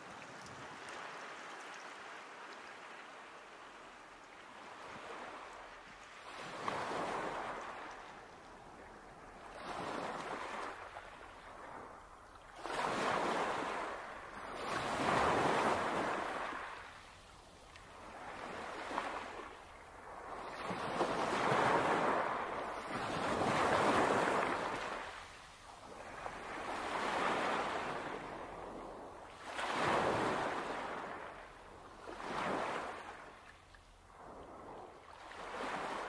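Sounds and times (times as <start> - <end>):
sea waves washing onto shore: 0.0 - 36.0.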